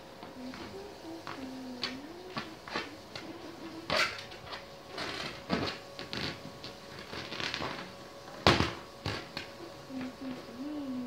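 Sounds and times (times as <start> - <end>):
faint steady hum: 0.0 - 11.0
hands tapping inflated balloon: 0.5 - 4.3.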